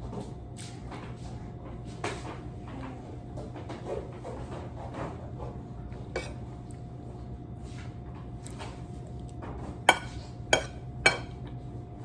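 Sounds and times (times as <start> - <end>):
low steady hum: 0.0 - 12.0
cutlery clinking on a ceramic plate: 9.9 - 11.4.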